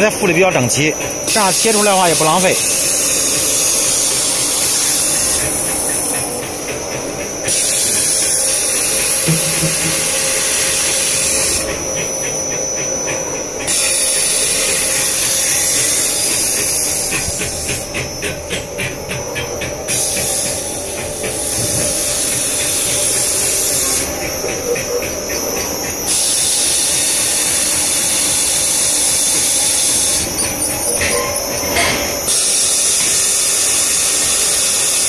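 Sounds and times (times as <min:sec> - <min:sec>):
cutting machine hissing: 0:00.0 - 0:18.3
fast even pulsing: 0:09.2 - 0:11.5.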